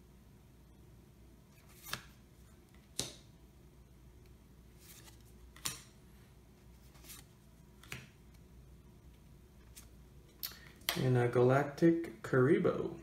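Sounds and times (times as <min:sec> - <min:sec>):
cards snapping off a stack: 0:02.9 - 0:03.3, 0:05.5 - 0:05.9.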